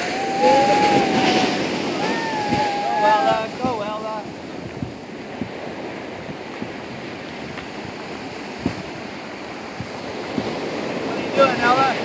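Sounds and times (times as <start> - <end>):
ocean surf: 0.0 - 12.0
wind on microphone: 0.0 - 12.0
low thumps: 4.5 - 9.0.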